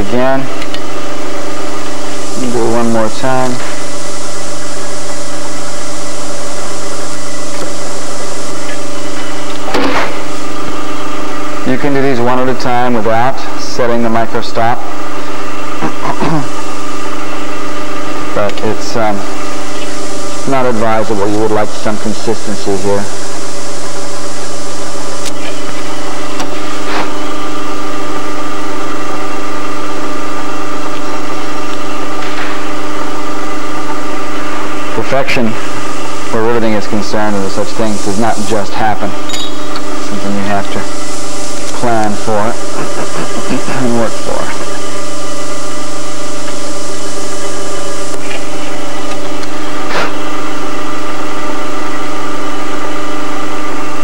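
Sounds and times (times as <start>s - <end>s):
drill press motor humming: 14.9s - 54.0s.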